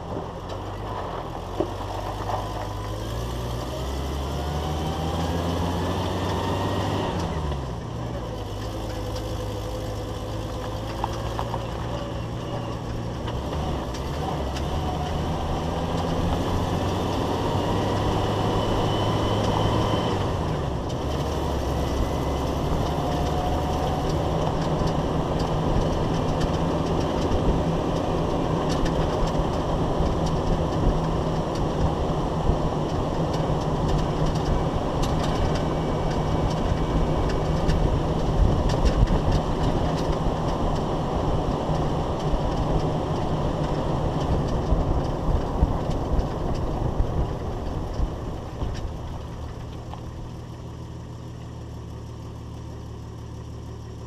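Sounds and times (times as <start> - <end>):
low drivetrain drone: 0.0 - 54.0
tyre and road noise: 0.0 - 54.0
sharp clicks and rattles: 7.2 - 18.2, 20.7 - 51.6.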